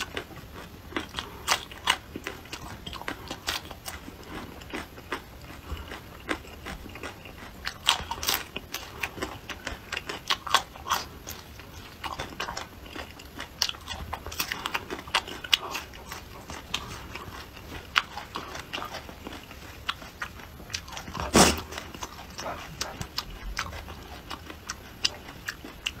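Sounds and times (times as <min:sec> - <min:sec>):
chewing chilli pepper: 0:00.0 - 0:26.0
nose sniffle: 0:21.2 - 0:21.7.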